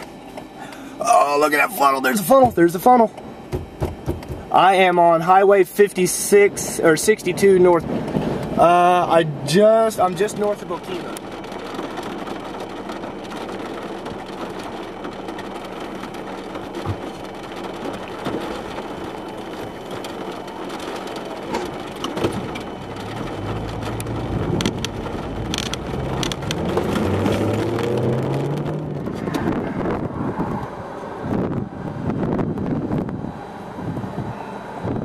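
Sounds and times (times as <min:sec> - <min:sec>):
rain taps: 0:02.2 - 0:05.0, 0:09.9 - 0:29.5
rain on a car: 0:04.5 - 0:29.4
car engine accelerating: 0:07.8 - 0:35.0.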